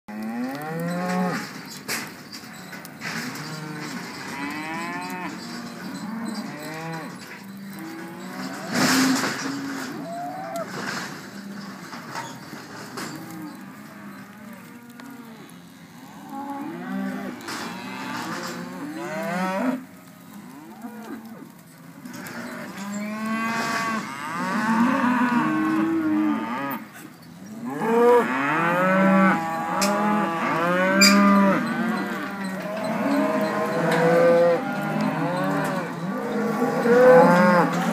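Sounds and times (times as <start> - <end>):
cattle mooing: 0.1 - 1.5, 3.3 - 10.7, 22.1 - 26.8, 27.7 - 37.9.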